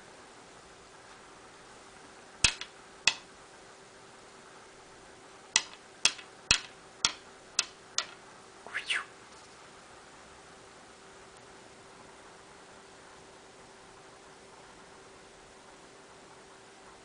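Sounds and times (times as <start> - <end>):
sharp hand clicks: 2.4 - 3.3, 5.6 - 8.2.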